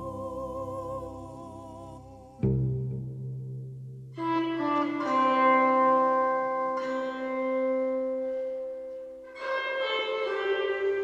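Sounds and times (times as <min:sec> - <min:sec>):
string music with held notes: 0:04.0 - 0:11.0.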